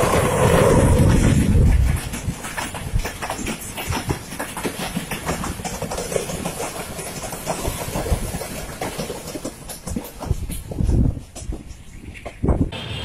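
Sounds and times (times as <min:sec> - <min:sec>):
passing train: 0:00.0 - 0:13.0
train wheels clattering on rails: 0:00.0 - 0:13.0.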